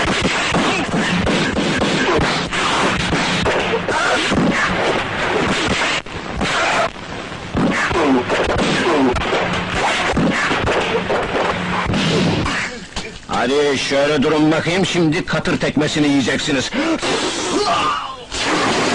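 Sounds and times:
punch and hit sound effects: 0:00.0 - 0:06.9, 0:07.5 - 0:12.7, 0:18.4 - 0:18.9
shouts and grunts: 0:17.5 - 0:18.3.

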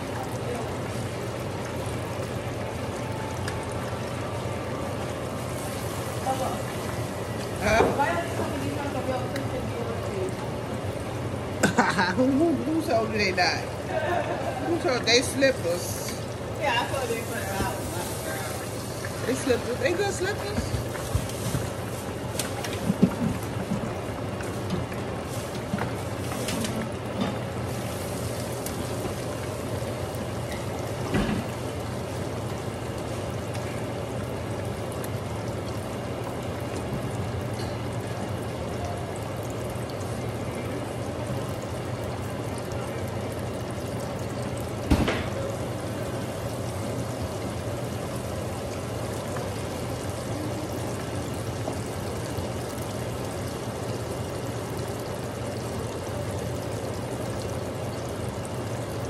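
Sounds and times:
oil sizzling and bubbling: 0:00.0 - 0:59.0.

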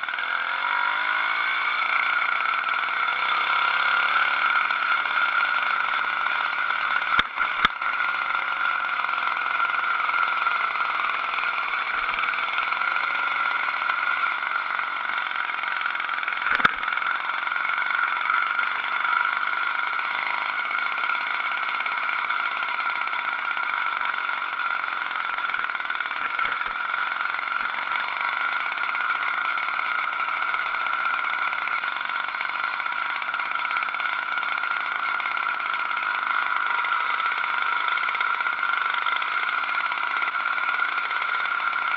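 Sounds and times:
two-stroke engine drone: 0:00.0 - 0:41.9.

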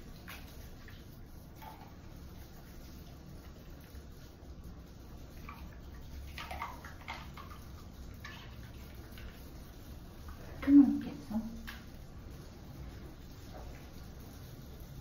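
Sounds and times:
low steady hum: 0:00.0 - 0:15.0
toothbrush scrubbing teeth: 0:00.0 - 0:15.0.

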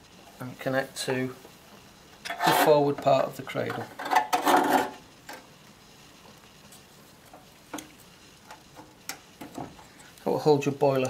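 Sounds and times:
strap clicks and taps: 0:08.5 - 0:09.7.

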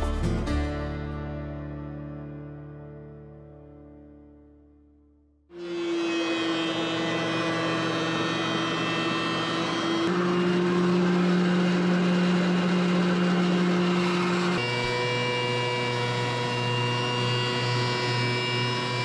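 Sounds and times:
woodshop machine motor humming: 0:05.5 - 0:19.0.

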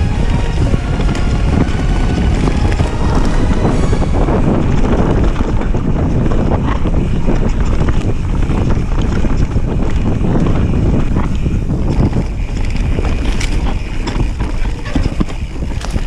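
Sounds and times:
bike tyres rumbling on dirt: 0:00.0 - 0:16.0
wind buffeting microphone: 0:00.0 - 0:16.0
bike rattles and knocks: 0:04.7 - 0:16.0.

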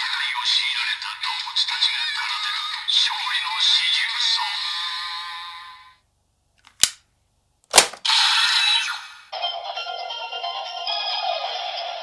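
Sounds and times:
plastic clicks: 0:06.6 - 0:07.0
toy electronic audio: 0:08.0 - 0:12.0.

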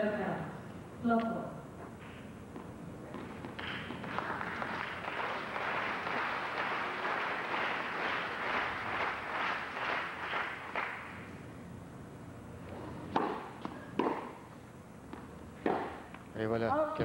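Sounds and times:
crowd applauding: 0:03.6 - 0:11.2.

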